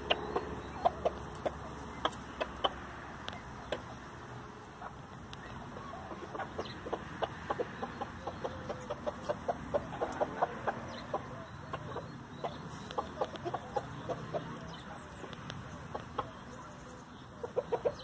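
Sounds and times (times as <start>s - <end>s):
chickens pecking clicks: 0.0s - 3.9s, 12.8s - 14.7s, 15.3s - 16.4s
chickens clucking: 0.0s - 18.0s.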